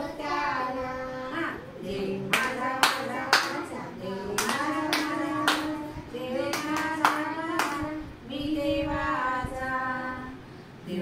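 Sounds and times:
woman singing a children's rhyme: 0.1s - 11.0s
hand claps: 2.3s - 3.7s, 4.4s - 5.8s, 6.4s - 7.8s.

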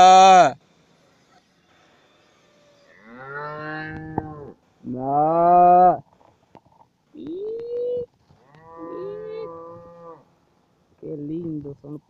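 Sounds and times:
cattle mooing: 2.8s - 4.6s, 8.4s - 10.3s.

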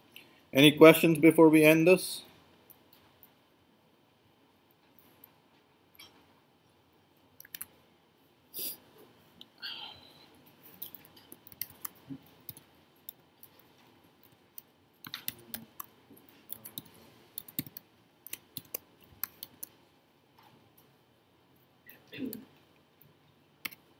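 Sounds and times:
computer keyboard clicks: 10.8s - 13.5s, 14.2s - 15.9s, 16.5s - 19.7s.

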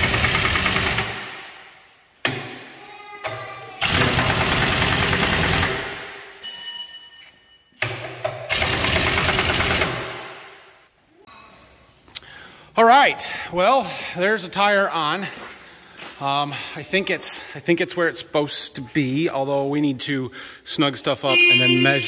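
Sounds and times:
pneumatic impact wrench: 0.0s - 1.4s, 3.8s - 6.1s, 8.5s - 10.3s.

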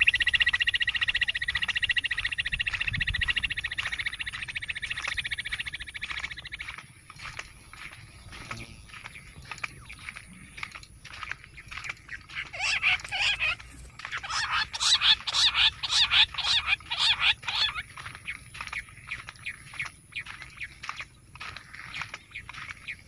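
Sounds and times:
quail calling: 12.1s - 18.1s.

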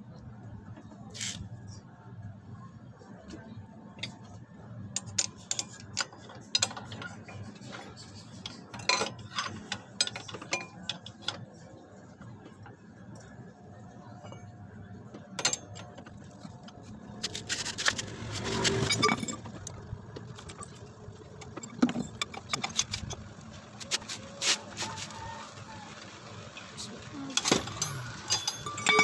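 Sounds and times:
metal tools clinking: 5.0s - 11.6s, 15.4s - 23.3s, 27.3s - 29.0s.

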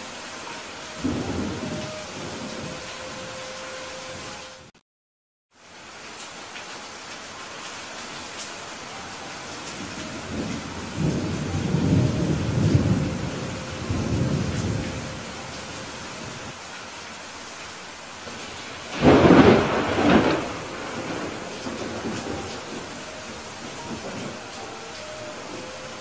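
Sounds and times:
rain hiss: 0.0s - 4.7s, 5.5s - 26.0s
thunder rumbling: 0.5s - 3.4s, 9.4s - 16.6s, 18.2s - 26.0s.

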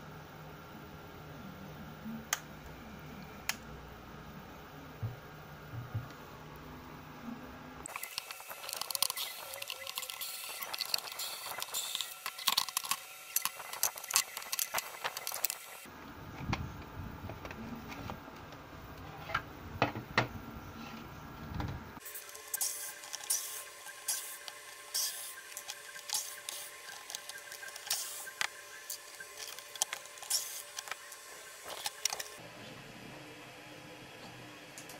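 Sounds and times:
plastic parts clicking and rattling: 7.9s - 15.7s, 22.5s - 32.4s.

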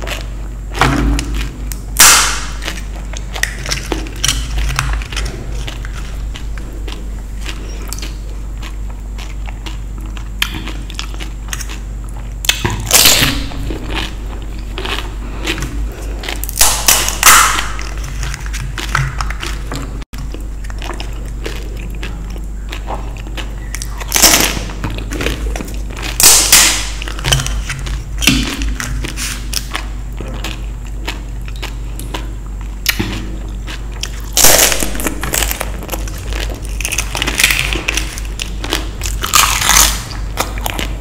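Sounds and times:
chewing: 0.0s - 41.0s
crunchy bites: 0.0s - 41.0s
steady low hum: 0.0s - 41.0s.

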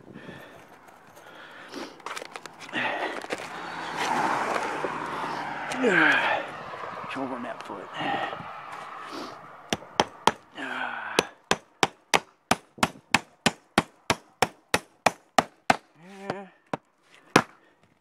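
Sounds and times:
hammer nailing wood: 9.7s - 10.4s, 11.2s - 17.6s.

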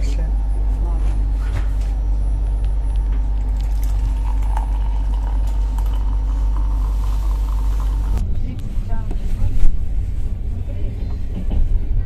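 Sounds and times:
hot water pouring into mug: 3.3s - 8.2s
train carriage rumbling and rattling: 8.1s - 12.0s.

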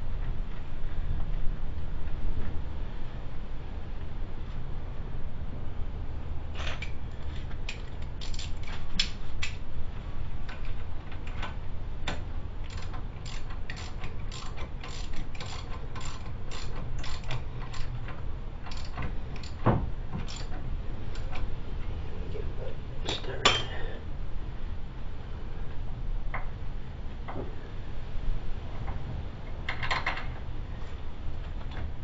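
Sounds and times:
steady low hum: 0.0s - 32.0s
ratchet wrench clicking: 7.7s - 9.6s, 12.6s - 18.0s, 18.6s - 19.6s, 20.2s - 21.4s.

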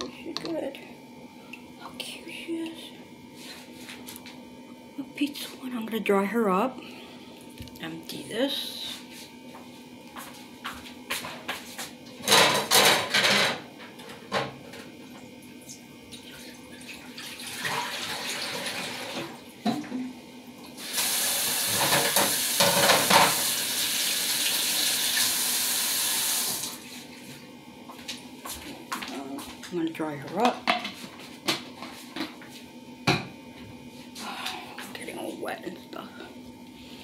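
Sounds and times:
tap water running and splashing: 16.1s - 19.3s, 20.8s - 26.8s.

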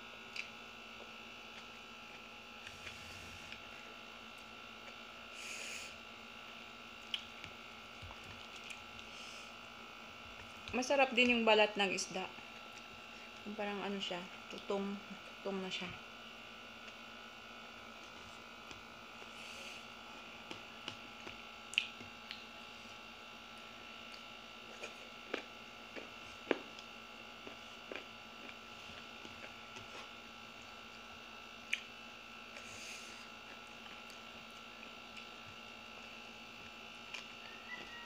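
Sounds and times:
electrical hum: 0.0s - 38.0s
chewing smacks: 7.0s - 9.1s, 20.4s - 22.5s, 31.6s - 31.9s.

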